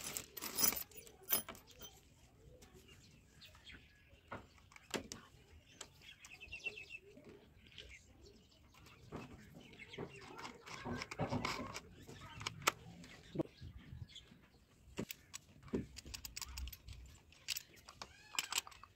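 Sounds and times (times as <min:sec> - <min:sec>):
small metal parts clinking: 0:00.0 - 0:02.0, 0:15.0 - 0:18.9.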